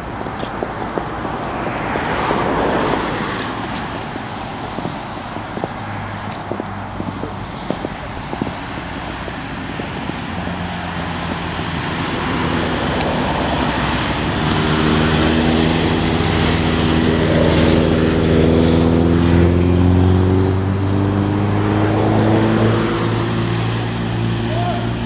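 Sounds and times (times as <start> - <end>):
steady rushing noise: 0.0 - 19.4
vehicle engine droning: 0.0 - 25.0.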